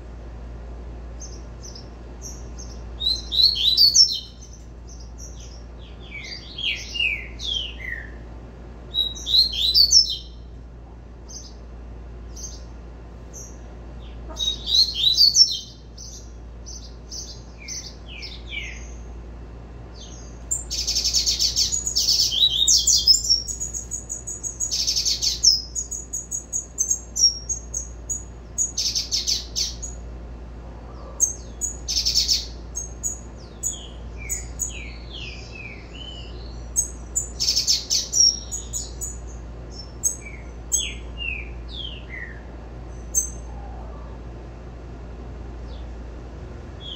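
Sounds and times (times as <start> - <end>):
bird singing high descending notes: 3.0 - 4.4, 20.5 - 30.0.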